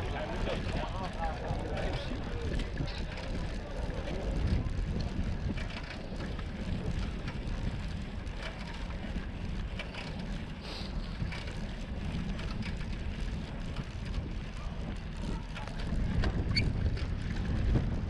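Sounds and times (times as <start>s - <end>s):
bicycle rolling over brick paving: 0.0s - 18.0s
bike rattling and knocking: 0.0s - 18.0s
wind noise on microphone: 0.0s - 18.0s.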